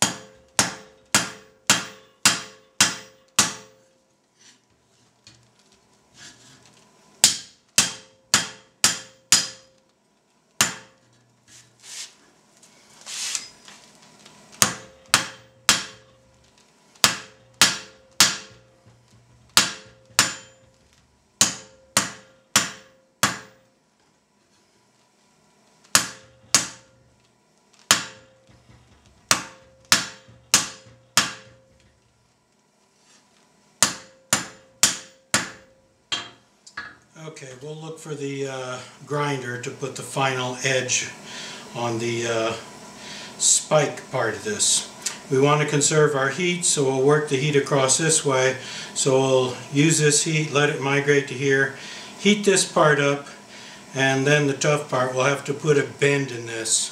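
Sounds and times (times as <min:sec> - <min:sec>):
hammer striking hot steel on anvil: 0:00.0 - 0:03.9, 0:07.2 - 0:09.8, 0:10.6 - 0:11.2, 0:14.6 - 0:16.3, 0:17.0 - 0:23.6, 0:25.9 - 0:27.1, 0:27.9 - 0:32.0, 0:33.8 - 0:37.1.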